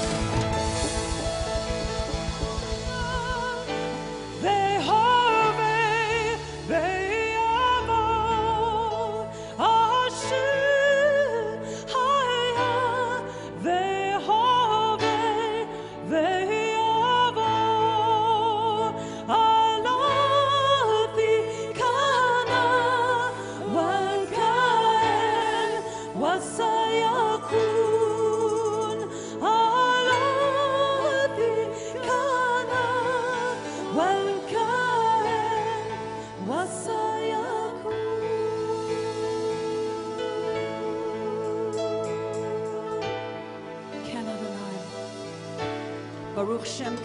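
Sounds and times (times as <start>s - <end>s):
keyboard chords: 0.0s - 8.0s
band playing worship music: 0.0s - 47.0s.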